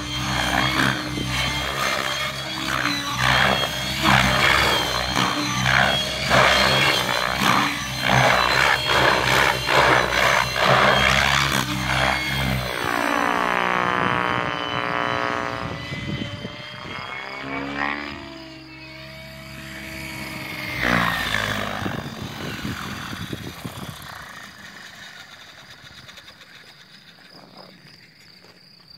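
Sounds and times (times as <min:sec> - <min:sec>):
model helicopter rotor buzz: 0:00.0 - 0:28.6
wind rumbling on microphone: 0:11.6 - 0:18.3, 0:20.2 - 0:24.5.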